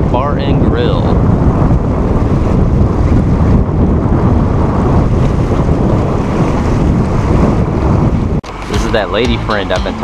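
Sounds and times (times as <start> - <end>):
water rushing along hull: 0.0 - 10.0
wind buffeting microphone: 0.0 - 10.0.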